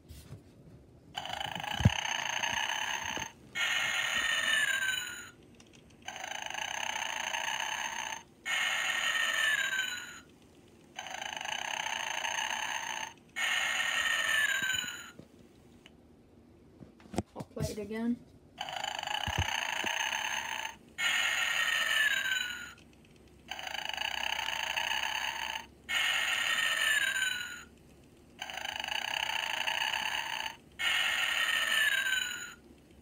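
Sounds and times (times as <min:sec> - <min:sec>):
toy snoring: 0:01.2 - 0:05.4, 0:06.0 - 0:10.3, 0:11.0 - 0:15.2, 0:18.6 - 0:22.8, 0:23.5 - 0:27.7, 0:28.4 - 0:32.6.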